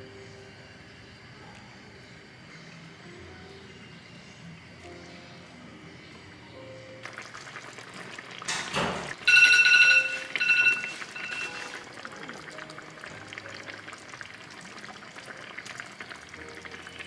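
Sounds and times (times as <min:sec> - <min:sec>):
soft background music: 0:00.0 - 0:17.0
sauce simmering in a pan: 0:07.0 - 0:09.3, 0:10.0 - 0:17.0
bright ringing tone: 0:09.2 - 0:11.9.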